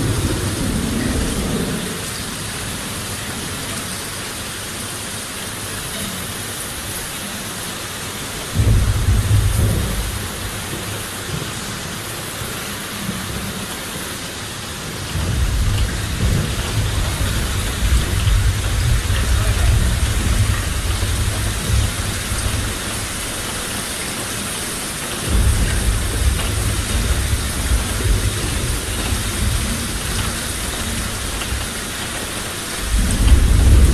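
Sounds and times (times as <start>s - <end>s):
thunder rumbling: 0.0s - 3.0s, 8.6s - 12.1s, 14.8s - 33.9s
heavy steady rain: 0.0s - 33.9s.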